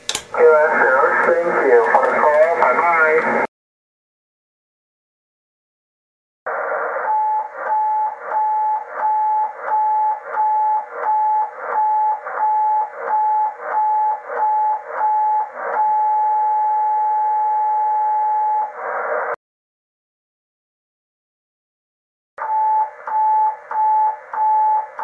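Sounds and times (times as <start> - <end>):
radio receiver hiss: 0.0 - 3.5, 6.5 - 9.8, 18.8 - 19.4.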